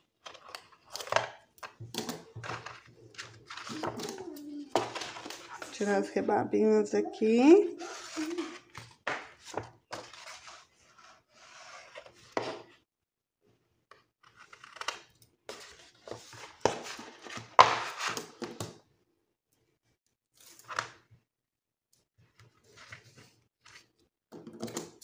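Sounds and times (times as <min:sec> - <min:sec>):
paper rustling and scraping: 0:02.0 - 0:06.1, 0:07.7 - 0:12.7, 0:15.5 - 0:18.5.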